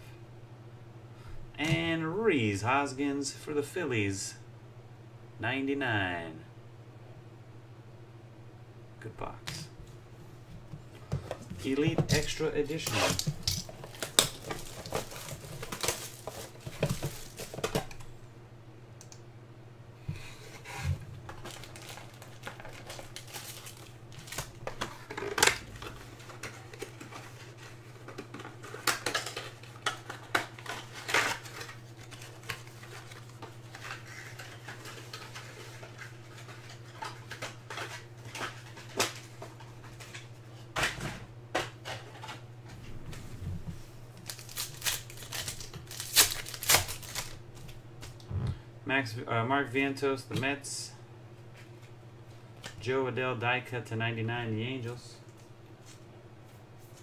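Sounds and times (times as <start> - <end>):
steady low hum: 0.0 - 57.0
cardboard and foil crinkling: 11.7 - 18.0, 21.3 - 40.3, 44.1 - 47.4.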